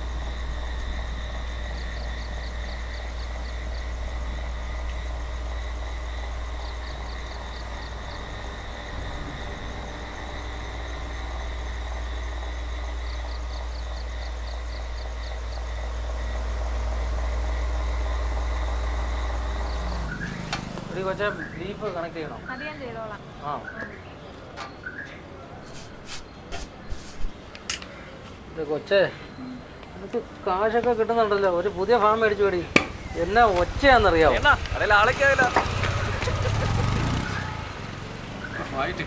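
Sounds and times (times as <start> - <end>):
electric fan humming with whine: 0.0 - 21.0.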